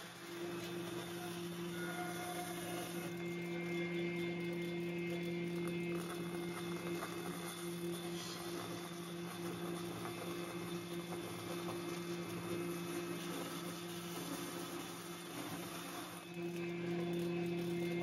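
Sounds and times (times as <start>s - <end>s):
bandsaw motor hum: 0.0s - 18.0s
saw blade cutting wood: 6.3s - 16.4s.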